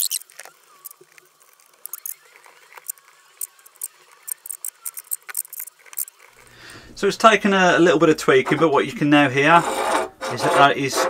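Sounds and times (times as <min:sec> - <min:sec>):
metal pin scratching on wood: 0:09.5 - 0:11.0.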